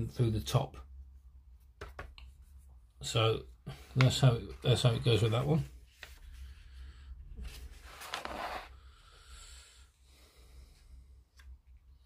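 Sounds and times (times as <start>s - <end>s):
paper page turning: 7.5s - 8.7s.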